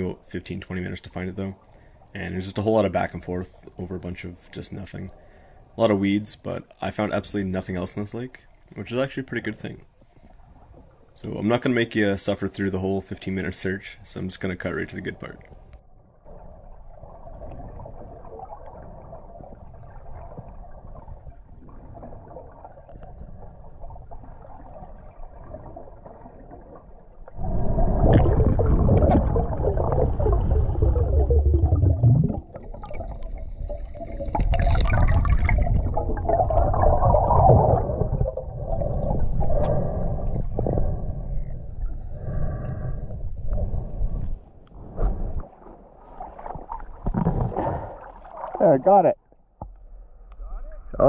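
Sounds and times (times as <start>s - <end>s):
underwater exhaled air bubbling: 16.3s - 48.6s.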